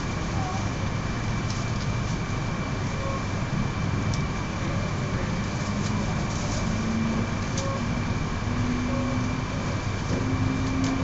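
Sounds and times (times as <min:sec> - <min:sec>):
train running gear rumble: 0:00.0 - 0:11.0
low motor hum rising in pitch: 0:02.9 - 0:11.0.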